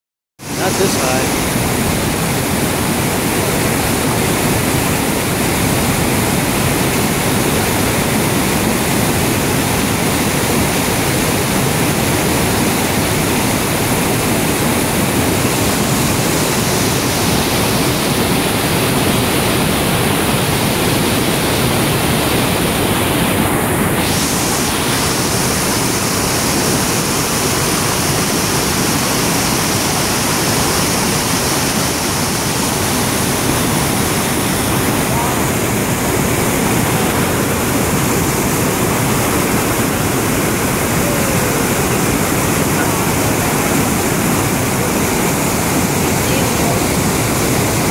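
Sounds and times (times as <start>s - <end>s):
water rushing over dam spillway: 0.4s - 47.9s.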